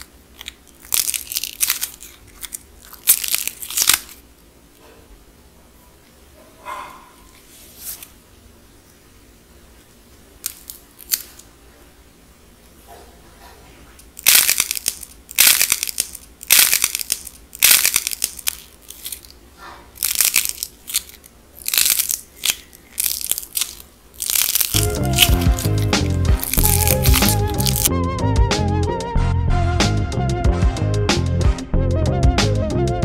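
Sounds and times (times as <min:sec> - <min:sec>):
clay shell cracking: 0:00.0 - 0:04.2, 0:10.4 - 0:11.4, 0:14.0 - 0:19.4, 0:20.0 - 0:27.9.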